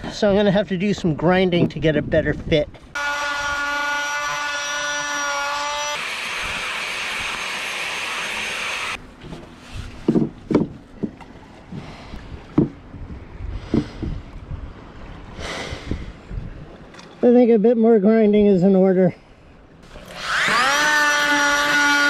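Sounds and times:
angle grinder grinding: 3.0 - 9.0, 20.0 - 22.0.

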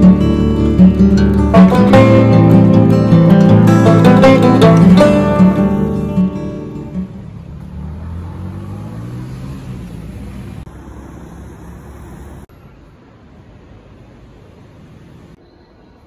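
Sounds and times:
background music: 0.0 - 7.3
motor vehicle low rumble: 0.0 - 15.4
road noise: 0.0 - 16.0.

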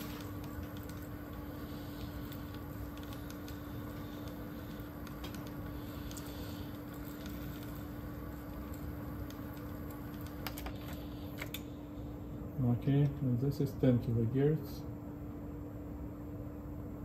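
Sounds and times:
cassette deck tape transport hum: 0.0 - 17.0.

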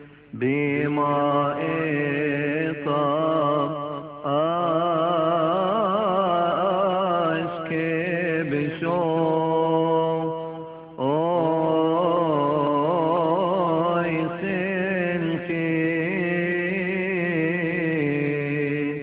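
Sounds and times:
man chanting a hymn: 0.0 - 19.0.

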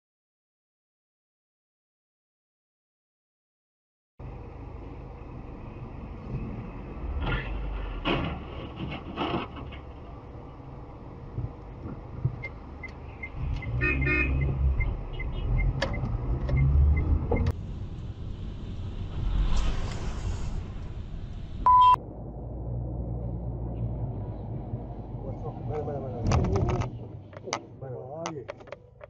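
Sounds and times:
car road and engine noise: 4.2 - 29.0
car horn: 13.7 - 15.7.

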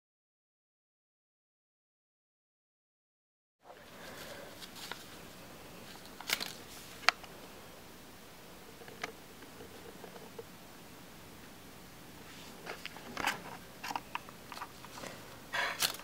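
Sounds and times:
faint room hiss: 3.6 - 16.0.

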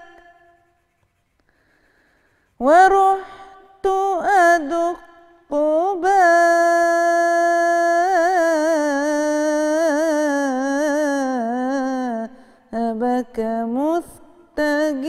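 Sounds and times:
woman singing devotional chant: 0.0 - 0.6, 2.6 - 15.0.

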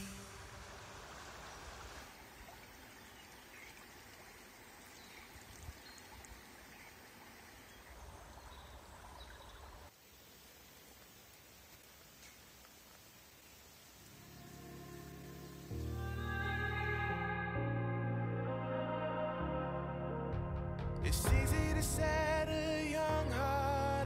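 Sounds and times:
water flowing in channel: 0.0 - 14.3.

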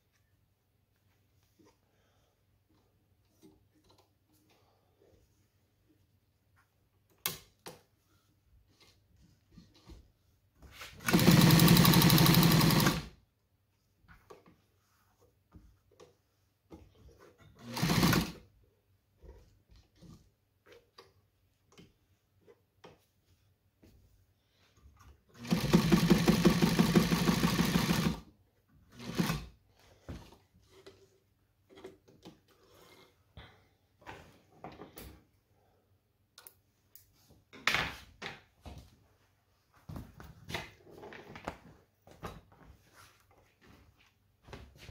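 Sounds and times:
sewing machine stitching: 11.0 - 13.2, 17.6 - 18.4, 25.3 - 28.3, 28.9 - 29.6.

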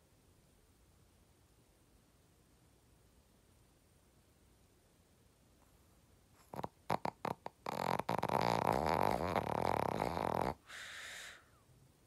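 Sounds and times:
dog snoring: 6.4 - 11.4
dog snorts: 6.4 - 11.4
breathy exhale: 10.6 - 11.6.

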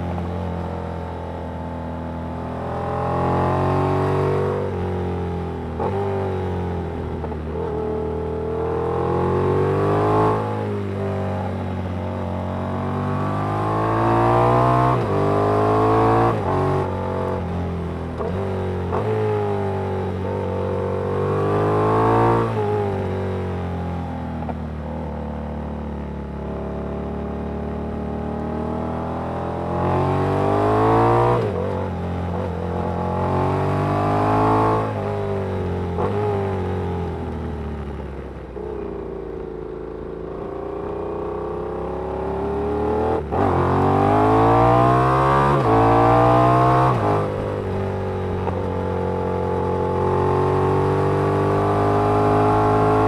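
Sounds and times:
motorcycle engine revving: 26.3 - 53.0.

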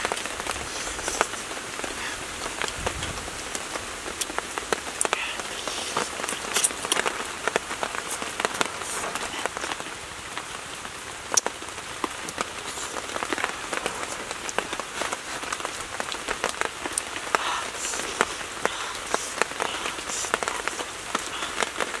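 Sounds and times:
soft hiss: 0.0 - 22.0
chewing and wet mouth clicks: 6.5 - 7.0.

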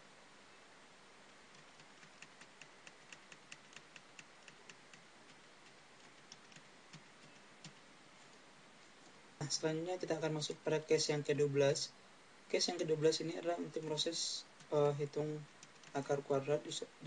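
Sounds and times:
keyboard typing clicks: 1.5 - 5.0, 15.6 - 16.0.

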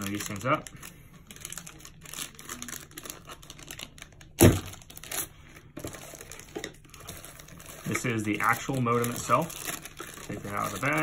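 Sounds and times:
plastic packaging crinkling: 0.0 - 11.0
hard object thump: 4.4 - 4.7.

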